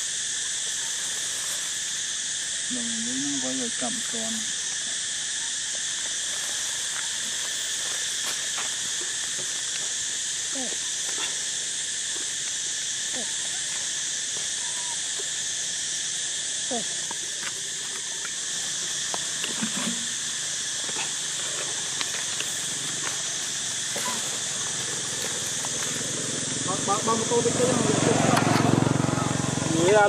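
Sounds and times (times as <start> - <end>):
high-pitched insect drone: 0.0 - 30.0
baby monkeys squeaking: 23.2 - 25.8.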